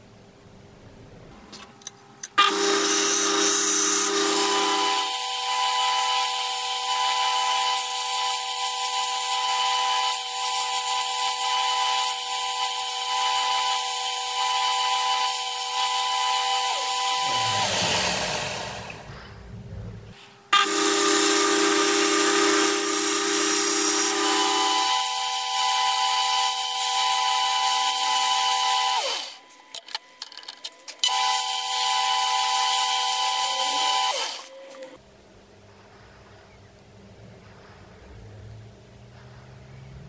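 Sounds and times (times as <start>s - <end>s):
electric power tool running: 2.4s - 19.1s, 20.6s - 29.4s, 31.0s - 34.5s.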